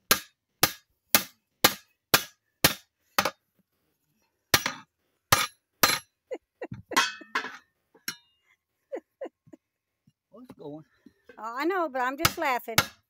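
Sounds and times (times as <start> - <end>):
hammer striking steel ring: 4.6 - 6.1, 7.0 - 8.3
light metal knocks and clinks: 6.7 - 8.4.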